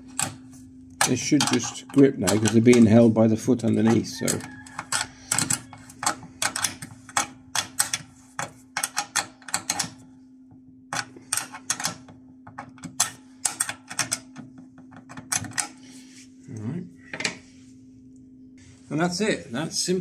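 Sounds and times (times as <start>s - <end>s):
faint steady hum: 0.0s - 20.0s
spanner metallic clicks: 1.0s - 3.1s.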